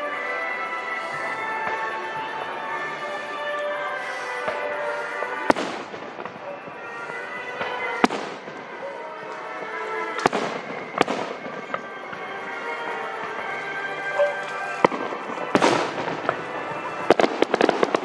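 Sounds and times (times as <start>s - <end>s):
faint fireworks pops: 0.0s - 18.0s
fireworks bangs: 0.0s - 18.0s
music with sustained tones: 0.0s - 18.0s.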